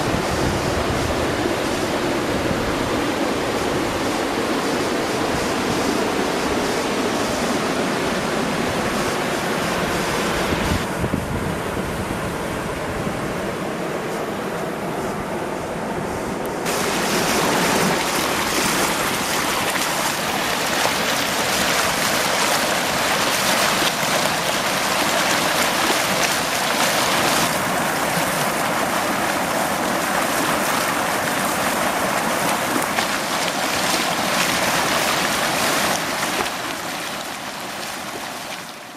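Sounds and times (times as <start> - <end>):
flood water rushing: 16.6 - 38.9.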